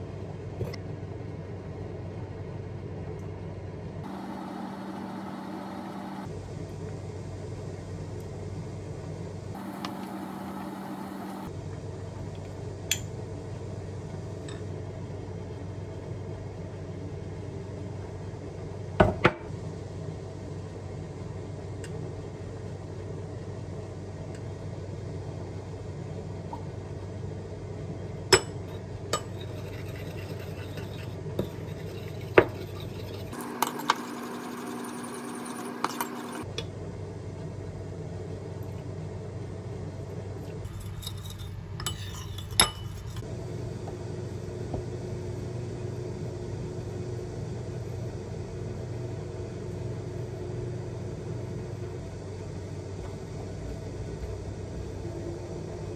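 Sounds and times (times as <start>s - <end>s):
steady low hum: 0.0s - 55.9s
dishes and utensils clinking: 40.7s - 43.2s.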